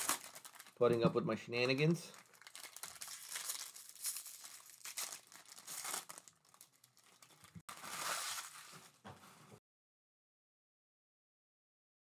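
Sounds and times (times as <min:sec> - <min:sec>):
foil wrapper tearing and crinkling: 0:00.0 - 0:00.8, 0:02.1 - 0:09.0.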